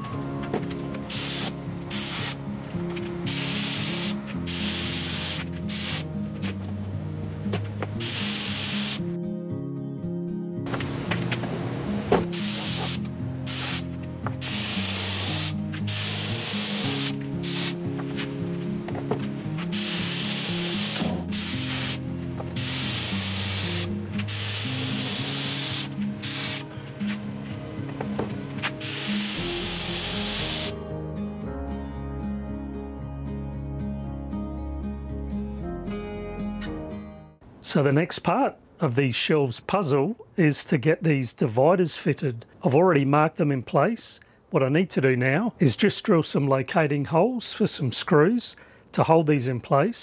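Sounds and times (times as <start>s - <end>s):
background music: 0.0s - 38.0s
spray gun hissing bursts: 1.1s - 2.4s, 3.3s - 6.0s, 8.0s - 9.0s, 12.3s - 17.8s, 19.7s - 22.0s, 22.6s - 26.7s, 28.8s - 30.8s.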